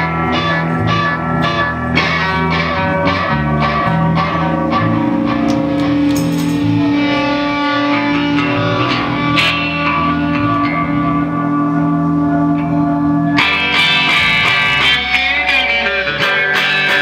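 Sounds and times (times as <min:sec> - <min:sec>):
punk rock band: 0:00.0 - 0:17.0.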